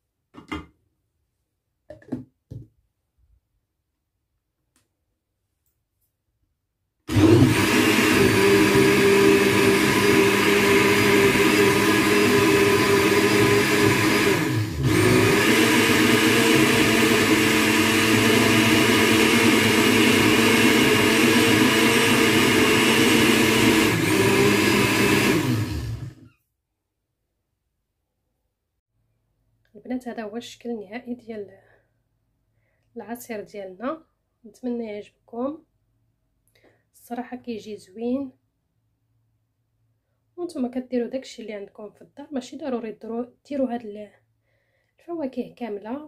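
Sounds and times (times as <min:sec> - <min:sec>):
blender running: 0:07.1 - 0:26.3.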